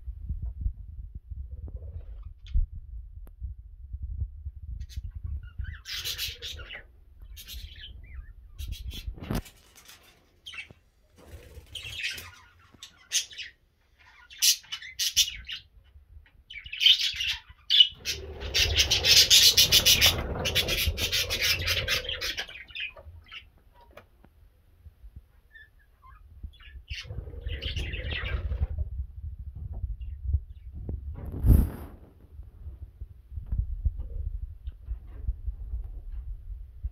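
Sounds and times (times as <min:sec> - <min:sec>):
budgerigars chirping: 0:05.6 - 0:09.1, 0:11.8 - 0:15.7, 0:16.5 - 0:23.4.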